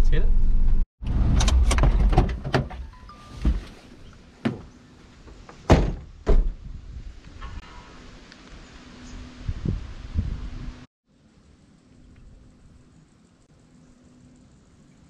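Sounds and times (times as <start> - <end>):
car door thuds: 5.6 - 6.6.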